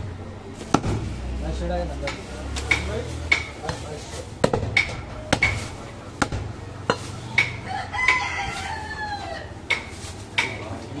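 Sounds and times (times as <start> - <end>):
knife chopping meat on wood: 2.0 - 3.8, 4.4 - 8.2
rooster crowing: 7.6 - 9.6.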